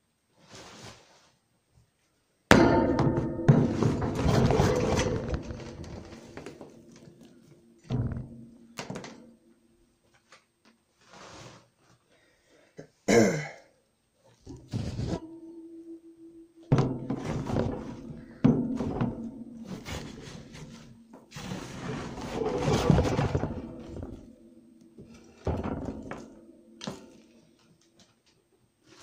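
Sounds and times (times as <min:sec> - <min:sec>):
wood shavings rustling and scraping: 0:19.7 - 0:24.2.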